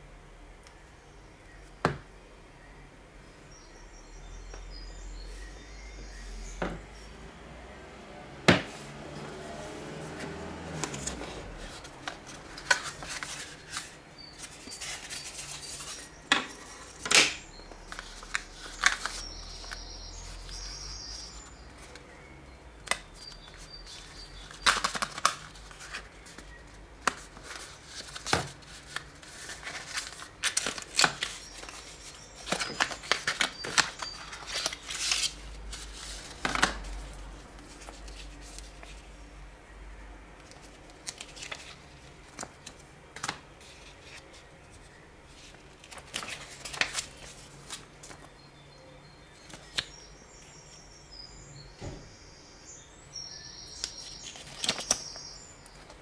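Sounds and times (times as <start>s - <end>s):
cardboard and plastic handling: 8.5s - 19.8s, 22.8s - 39.0s.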